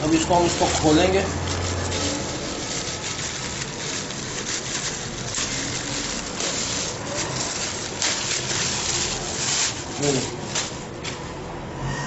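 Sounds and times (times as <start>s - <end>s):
plastic bag rustling and crinkling: 0.0s - 11.4s.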